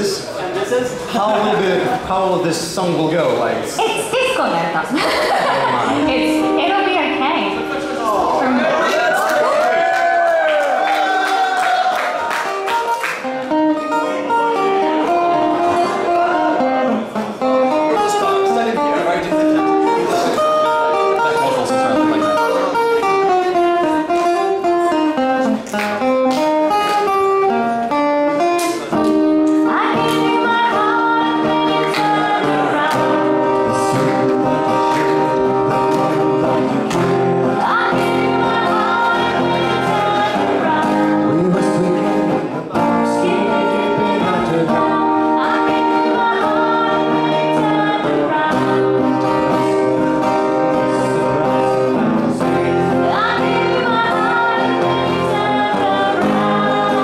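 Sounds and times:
strummed acoustic guitar: 12.5s - 57.0s
person singing lead vocal: 29.2s - 49.9s, 50.8s - 57.0s.

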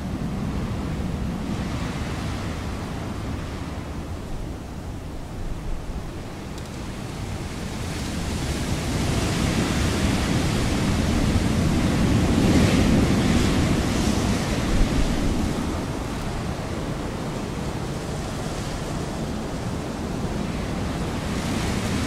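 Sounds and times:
wind gust: 7.3s - 22.0s.

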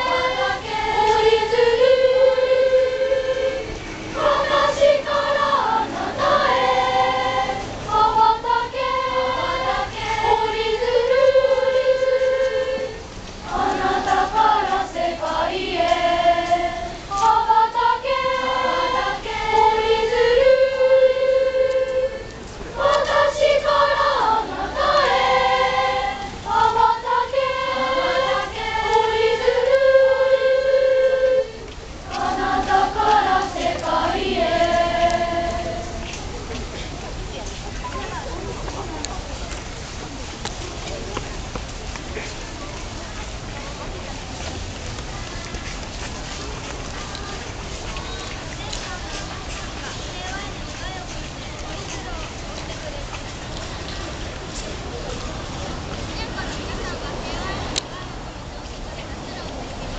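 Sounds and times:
children's choir singing: 0.0s - 36.8s.

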